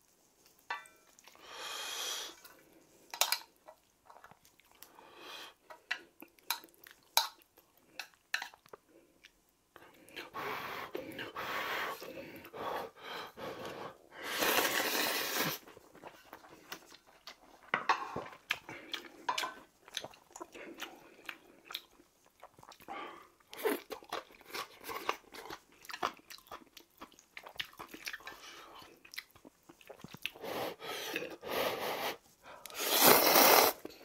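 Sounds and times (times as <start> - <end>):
slurping noodles: 13.5 - 16.7, 30.3 - 34.0.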